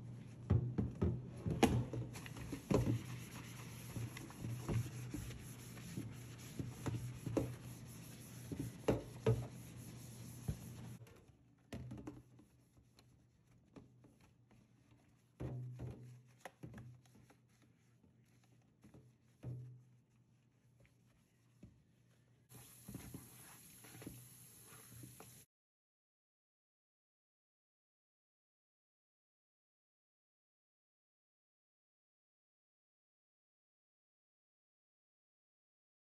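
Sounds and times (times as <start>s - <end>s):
sponge scrubbing: 2.1s - 11.0s, 16.1s - 25.4s
steady hiss: 22.5s - 25.5s.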